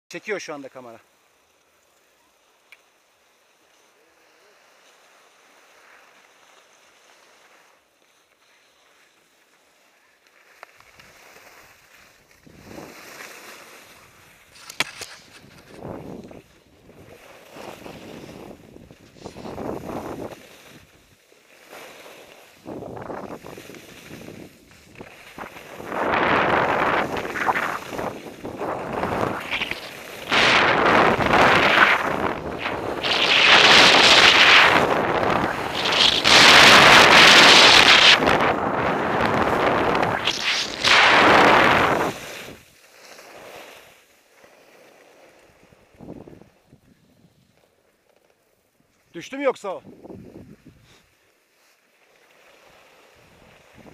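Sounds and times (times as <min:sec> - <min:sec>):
skis scraping over snow: 0:00.2 - 0:53.9
wind rushing over microphone: 0:14.8 - 0:20.9, 0:22.6 - 0:42.6, 0:45.9 - 0:47.0, 0:49.8 - 0:50.9.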